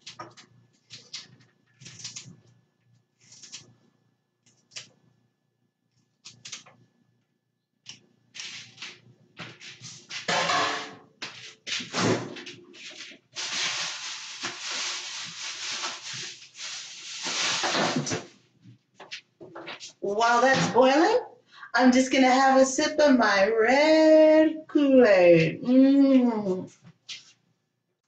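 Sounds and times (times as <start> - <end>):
kitchen rustles and knocks: 9.4 - 16.4, 17.2 - 18.4.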